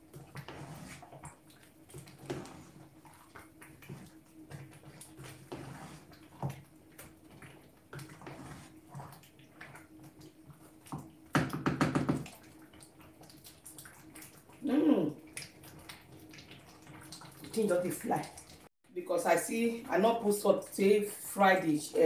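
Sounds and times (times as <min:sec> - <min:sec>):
wooden spoon scraping metal pot: 0:00.2 - 0:01.2, 0:05.2 - 0:06.5, 0:08.1 - 0:09.1.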